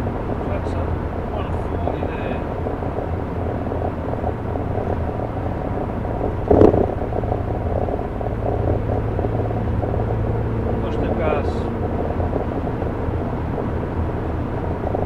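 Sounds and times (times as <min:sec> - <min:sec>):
engine and road noise in car: 0:00.0 - 0:15.0
low exhaust drone: 0:00.0 - 0:15.0.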